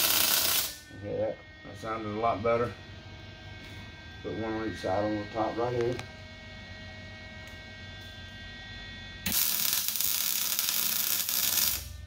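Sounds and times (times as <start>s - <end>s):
welding arc crackling: 0.0s - 0.8s, 9.2s - 12.0s
welder hum: 0.0s - 12.0s.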